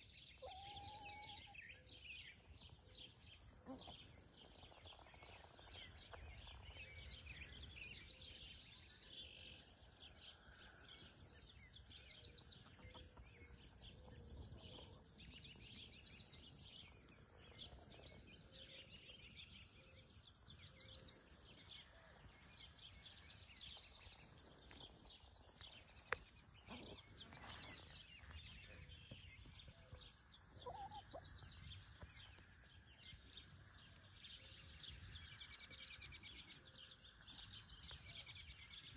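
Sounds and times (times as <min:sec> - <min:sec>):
birds chirping: 0:00.0 - 0:38.9
chickens clucking: 0:30.5 - 0:31.3.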